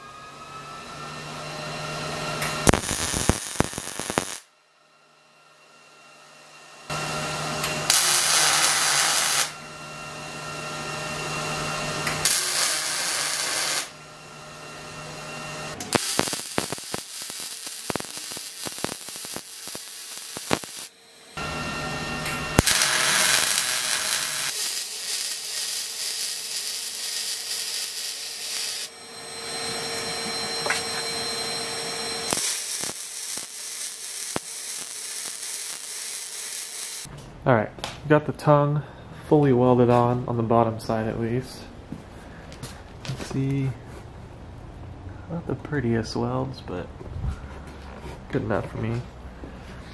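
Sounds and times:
welding arc crackling and hissing: 0:02.5 - 0:04.5, 0:07.8 - 0:09.6, 0:12.1 - 0:14.0, 0:15.8 - 0:21.4, 0:22.6 - 0:37.1.

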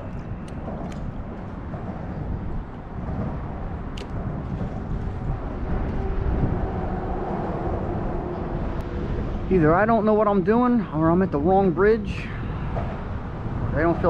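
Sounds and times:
passing traffic rumble: 0:00.0 - 0:14.0
sharp click: 0:03.9 - 0:04.2.

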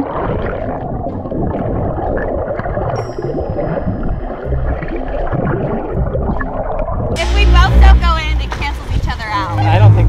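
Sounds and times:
underwater gurgling and bubbling: 0:00.0 - 0:07.2.

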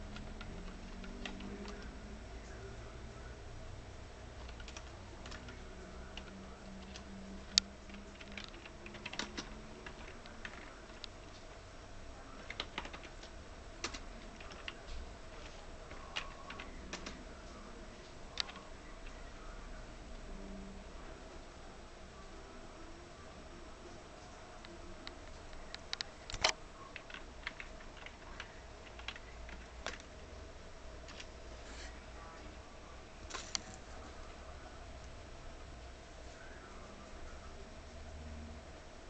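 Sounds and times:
steady low hum: 0:00.0 - 0:39.0
computer keyboard keystrokes: 0:00.1 - 0:02.0, 0:04.4 - 0:11.4, 0:12.4 - 0:17.3, 0:18.3 - 0:19.2, 0:25.0 - 0:30.1.

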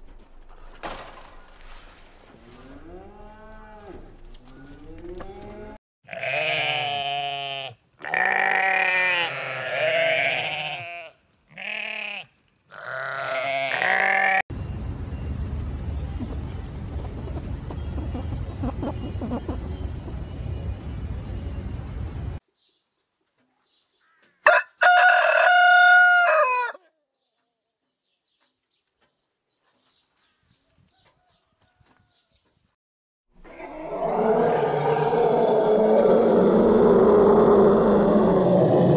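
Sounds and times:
sheep bleating: 0:06.1 - 0:14.4
rooster crowing: 0:24.4 - 0:26.8, 0:33.5 - 0:38.9.

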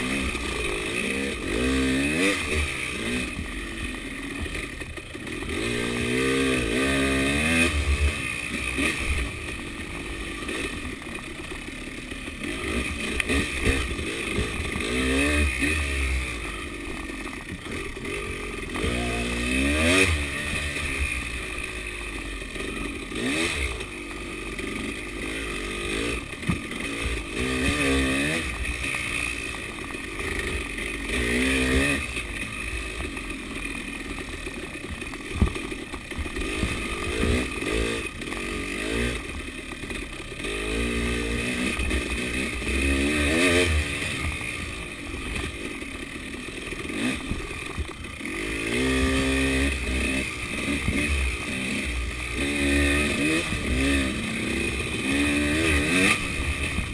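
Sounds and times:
dirt bike engine revving: 0:00.0 - 0:56.9
bike knocking over ground: 0:35.3 - 0:36.8.

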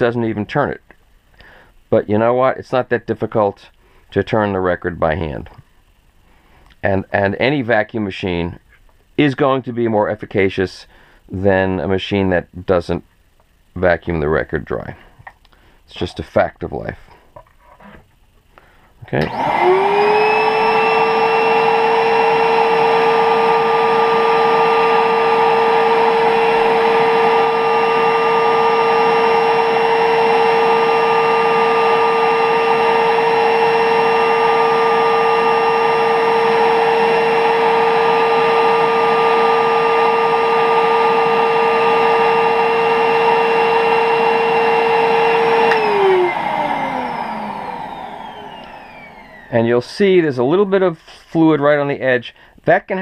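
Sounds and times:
vacuum motor whining: 0:19.1 - 0:49.8.

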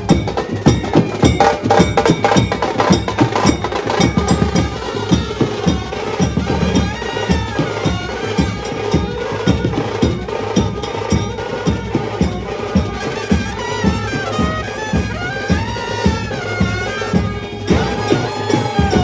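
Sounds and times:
bass drum and hand percussion: 0:00.0 - 0:19.0
trumpets and saxophones melody: 0:00.0 - 0:19.0.

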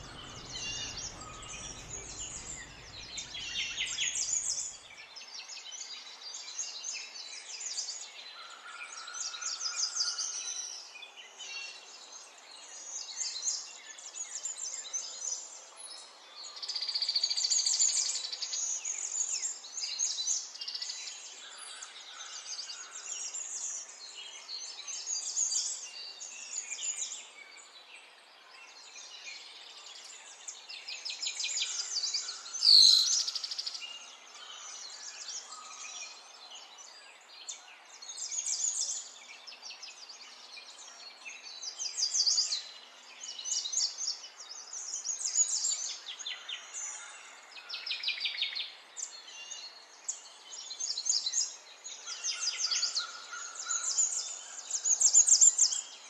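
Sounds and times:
birds chirping and singing: 0:00.0 - 0:04.8, 0:31.7 - 0:36.2.

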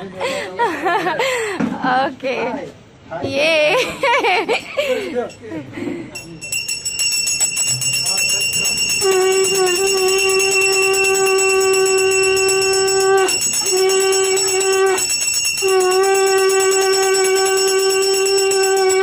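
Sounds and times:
continuous high ringing: 0:04.0 - 0:19.0
conch shell blasts: 0:08.6 - 0:19.0.

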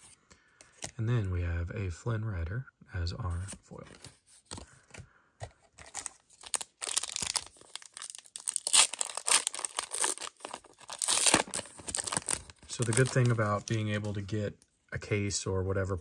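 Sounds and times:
foil pack crinkling and tearing: 0:05.8 - 0:14.1.

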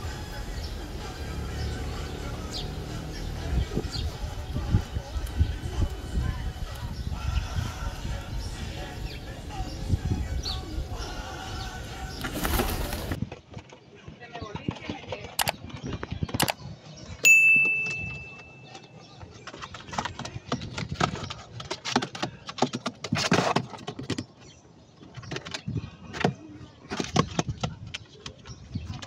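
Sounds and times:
bell ding: 0:17.2 - 0:18.7.

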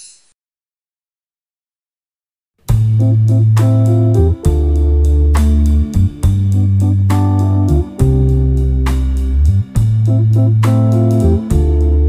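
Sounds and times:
instrumental background music: 0:02.7 - 0:12.0.

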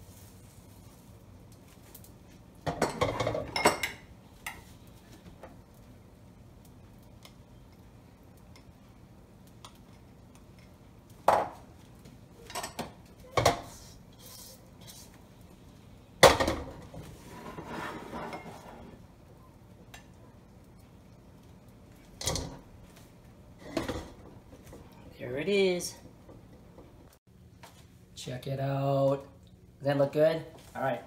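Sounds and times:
utensil scraping: 0:13.7 - 0:15.2, 0:17.1 - 0:19.0.

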